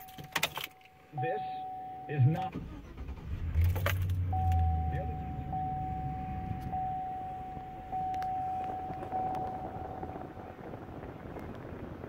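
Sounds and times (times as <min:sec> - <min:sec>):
dashboard warning chime: 0:00.0 - 0:02.5, 0:04.2 - 0:10.3
ignition click: 0:02.2 - 0:05.1, 0:06.4 - 0:10.3
truck engine starting and idling: 0:02.3 - 0:11.4.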